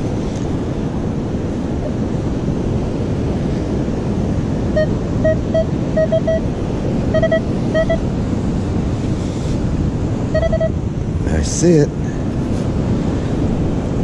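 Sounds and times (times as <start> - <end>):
wind on microphone: 0.0 - 11.3, 11.9 - 14.0
metal detector beeps: 4.8 - 6.5, 7.1 - 8.0, 10.3 - 10.8.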